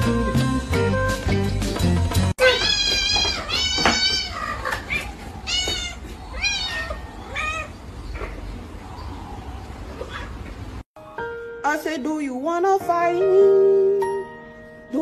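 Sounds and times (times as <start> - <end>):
cat meowing: 2.4 - 7.8.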